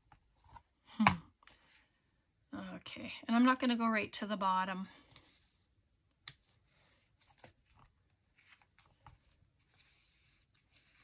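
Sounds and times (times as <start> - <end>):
paper rustling and scraping: 6.5 - 11.0.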